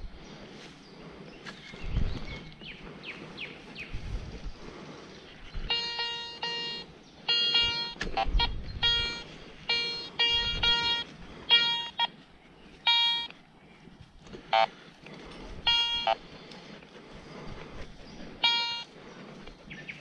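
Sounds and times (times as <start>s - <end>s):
buzzy detector tones: 5.4s - 12.2s, 12.8s - 13.4s, 14.4s - 14.8s, 15.5s - 16.3s, 18.3s - 19.0s
metal detector short beeps: 5.6s - 12.1s, 12.8s - 13.4s, 14.5s - 14.7s, 15.6s - 16.2s, 18.4s - 18.9s.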